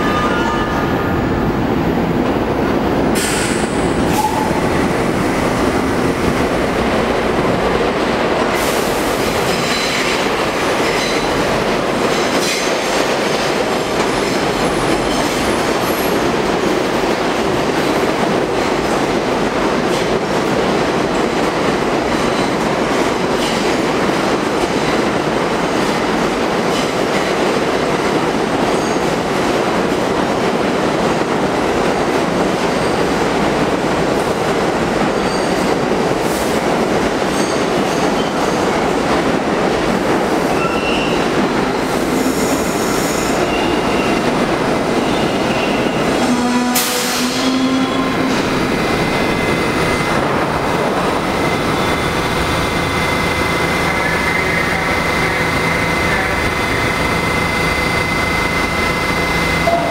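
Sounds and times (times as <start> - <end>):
train wheels rumbling and clacking: 0.7 - 59.9
wheel squeal: 40.6 - 41.2.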